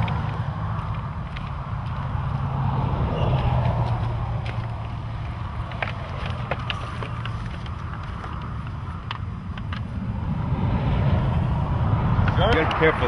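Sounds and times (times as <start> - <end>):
dry twigs snapping and crackling: 0.0 - 2.7, 3.3 - 9.9
wind buffeting microphone: 0.0 - 13.0.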